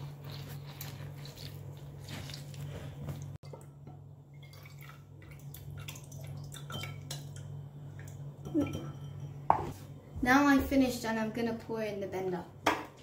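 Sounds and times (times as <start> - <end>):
juice dripping and trickling: 4.3 - 8.3.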